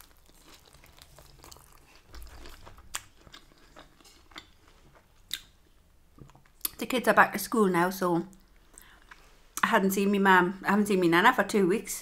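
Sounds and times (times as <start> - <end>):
person chewing food: 0.0 - 6.8, 8.3 - 9.6.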